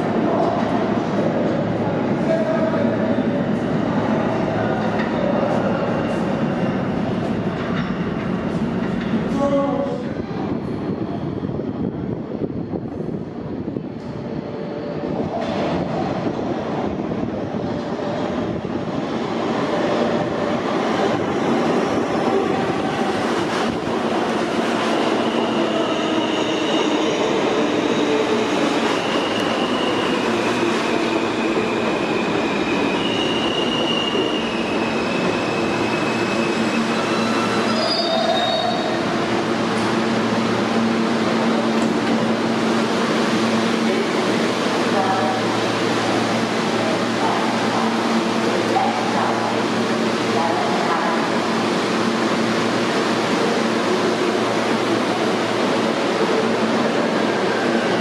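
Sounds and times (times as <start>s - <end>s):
steady train hum: 0.0s - 58.0s
train wheels rumbling on rails: 0.0s - 58.0s
high wheel squeals: 31.6s - 39.0s.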